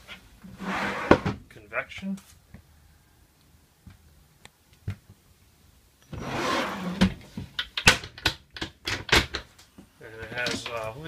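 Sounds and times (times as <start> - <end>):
drawer sliding open: 0.5 - 1.4, 6.1 - 7.3.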